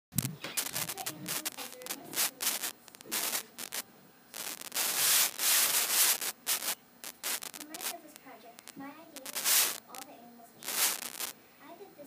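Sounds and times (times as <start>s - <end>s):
rubbing and scraping: 0.2s - 3.8s, 4.4s - 8.0s, 9.2s - 9.8s, 10.6s - 11.3s.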